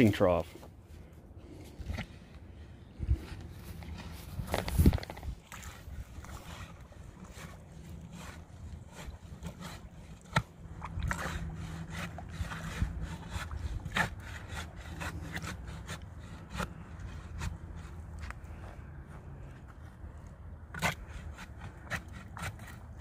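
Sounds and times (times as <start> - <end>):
low steady rumble: 0.0 - 23.0
stick scraping concrete mix: 3.1 - 18.5, 20.6 - 23.0.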